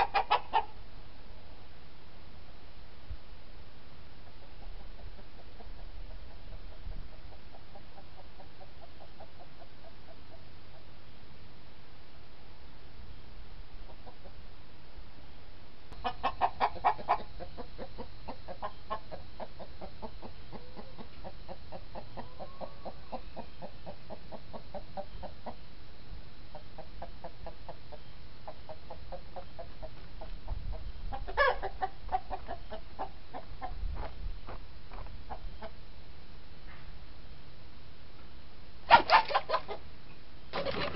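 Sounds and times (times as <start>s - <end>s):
chickens clucking: 0.0s - 0.8s, 4.2s - 11.0s, 13.9s - 14.4s, 16.0s - 25.7s, 26.5s - 35.8s, 38.9s - 39.9s, 40.5s - 40.9s.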